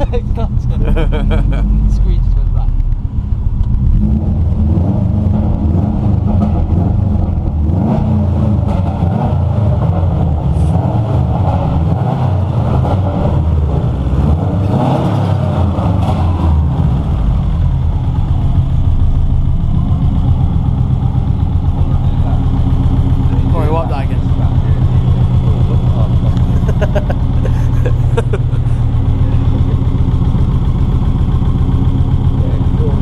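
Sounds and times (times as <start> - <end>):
car engine revving: 0.0 - 33.0.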